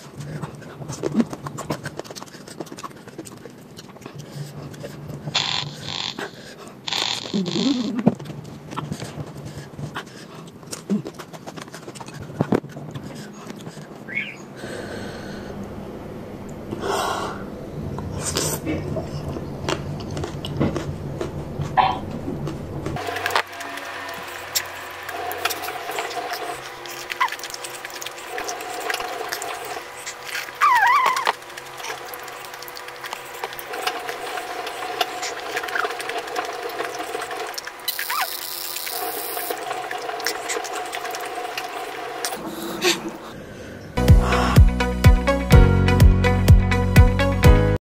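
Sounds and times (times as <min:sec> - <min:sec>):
chewing: 0:00.0 - 0:05.3, 0:08.0 - 0:14.0, 0:18.3 - 0:43.0
faint steady hum: 0:00.0 - 0:44.5
chewing and wet lip smacks: 0:00.4 - 0:05.0, 0:25.4 - 0:38.4.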